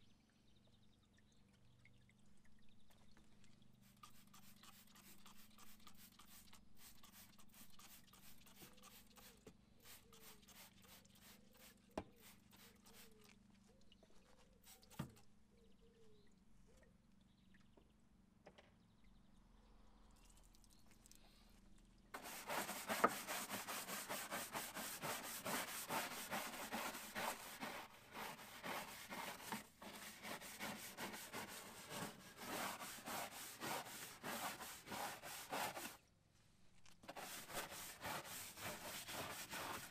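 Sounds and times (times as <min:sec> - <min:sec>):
scrubbing strokes on plastic lining: 0:03.8 - 0:13.4, 0:14.1 - 0:15.3, 0:22.2 - 0:36.0, 0:37.0 - 0:39.9.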